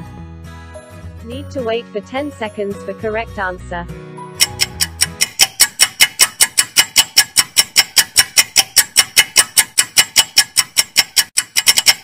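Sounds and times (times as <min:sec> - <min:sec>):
rapid timer ticks: 0:04.4 - 0:12.0.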